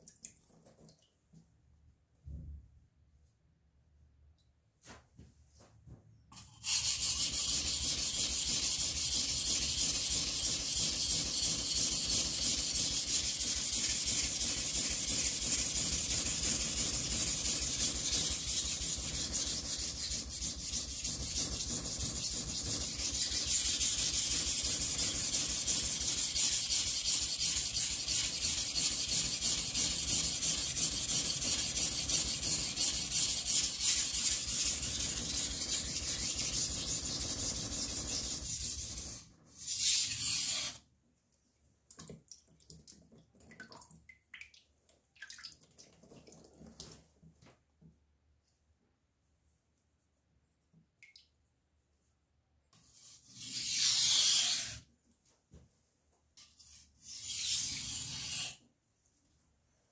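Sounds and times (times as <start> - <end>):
knife scraping on whetstone: 39.6 - 40.8, 52.9 - 54.8, 56.6 - 58.6.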